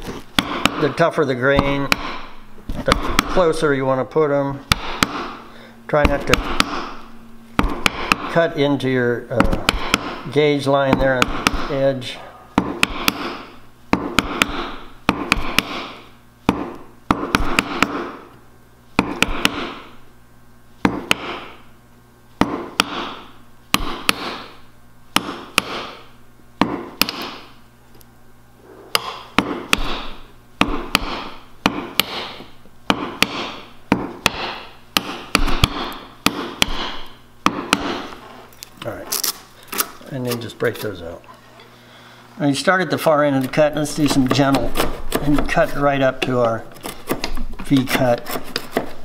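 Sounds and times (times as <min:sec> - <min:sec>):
hammer striking chisel: 0:00.3 - 0:03.6, 0:04.7 - 0:05.4, 0:06.0 - 0:07.0, 0:07.6 - 0:08.5, 0:09.4 - 0:11.9, 0:12.6 - 0:18.2, 0:19.0 - 0:19.9, 0:20.8 - 0:21.6, 0:22.4 - 0:24.6, 0:25.2 - 0:27.5, 0:28.9 - 0:38.2, 0:43.5 - 0:48.9.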